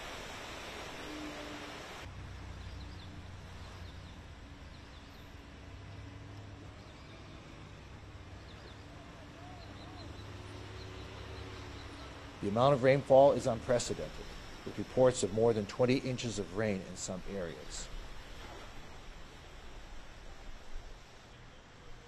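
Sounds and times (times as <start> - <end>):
small birds chirping: 8.4 - 12.6.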